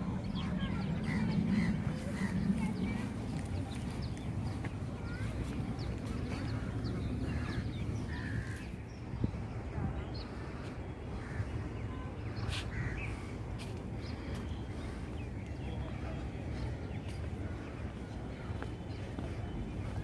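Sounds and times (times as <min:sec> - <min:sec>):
low outdoor rumble: 0:00.0 - 0:20.0.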